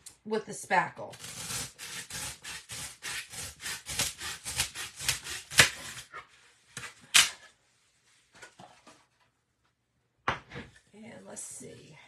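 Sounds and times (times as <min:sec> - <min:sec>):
knife sawing through styrofoam: 0:01.1 - 0:06.2.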